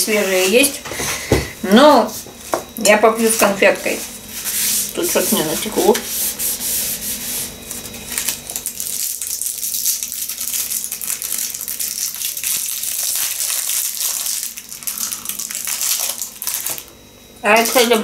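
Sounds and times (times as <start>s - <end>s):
candy wrapper crinkling: 8.1s - 16.9s.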